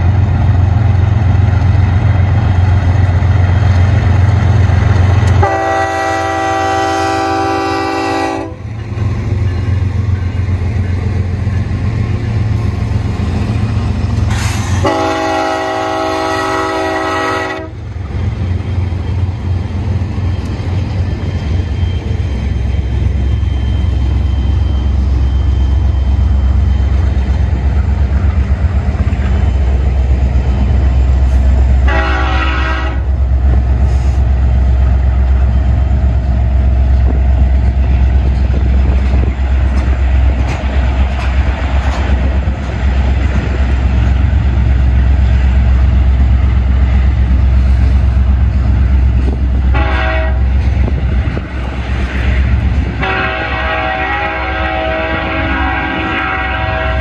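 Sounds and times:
freight train rumbling past: 0.0 - 57.0
locomotive chord horn: 5.3 - 8.7, 14.7 - 17.9, 31.2 - 33.2, 49.7 - 50.6, 53.0 - 57.0.

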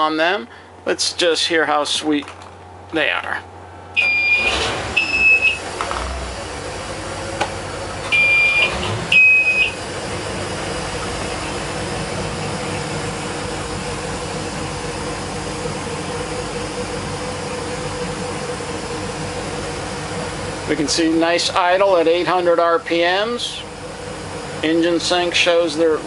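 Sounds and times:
boat engines idling: 0.0 - 26.0
warning buzzer beeping: 4.0 - 5.6, 8.1 - 9.8.

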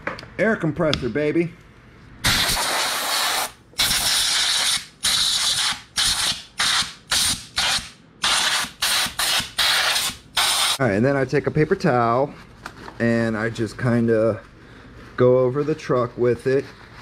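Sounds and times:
air blow gun hissing blasts: 2.2 - 7.4, 8.2 - 10.8.

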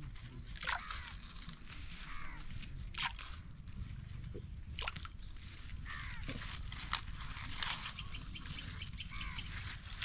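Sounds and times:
falling bird calls: 0.7 - 2.6, 5.4 - 6.6, 7.2 - 10.0.

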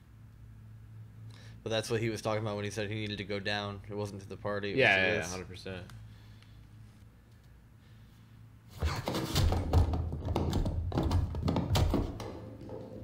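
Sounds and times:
irregular thuds and knocks: 8.8 - 13.0.

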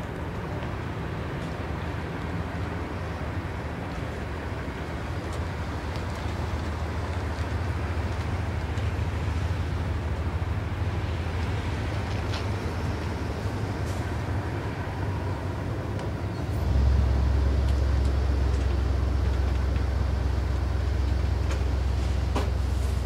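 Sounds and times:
train rumbling past: 3.2 - 23.0.

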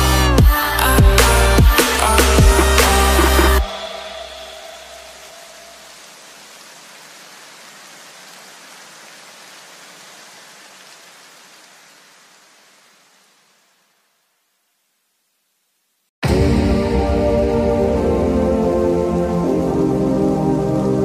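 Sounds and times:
low bass notes: 0.0 - 3.7
rushing hiss in electronic music: 0.0 - 6.6, 16.2 - 21.0.

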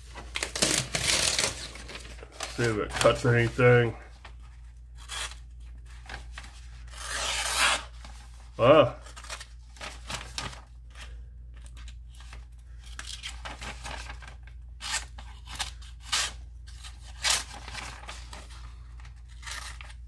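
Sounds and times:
knife cutting paper: 6.9 - 7.9.

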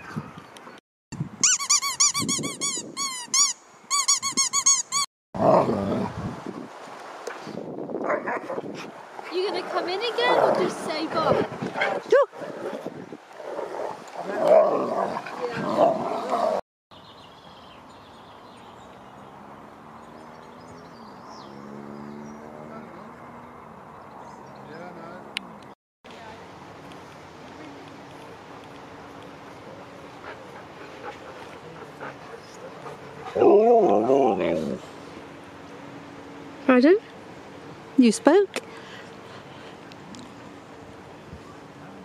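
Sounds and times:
squeaky dog toy squeaking: 1.4 - 5.1
outdoor background hiss: 5.4 - 42.0
distant vehicle engine humming: 18.1 - 42.0.

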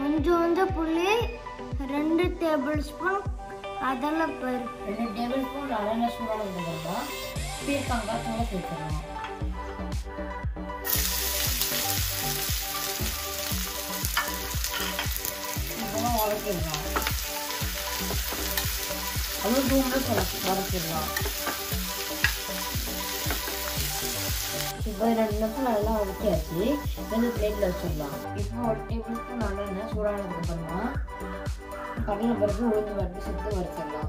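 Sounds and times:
vegetable pieces sizzling in pan: 10.8 - 28.2.

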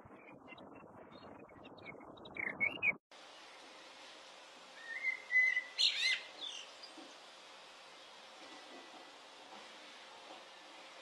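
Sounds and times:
blackbird singing: 4.8 - 6.9.

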